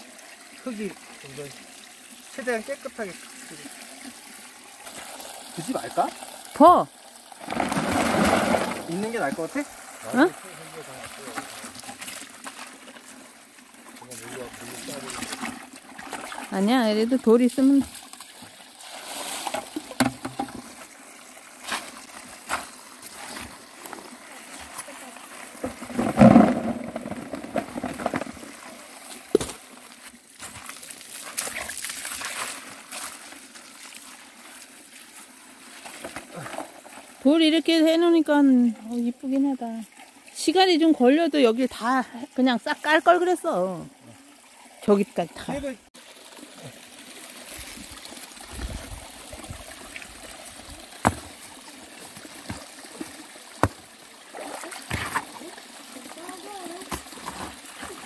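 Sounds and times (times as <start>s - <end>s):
water pouring into a bucket: 0.0s - 37.8s, 38.5s - 58.0s.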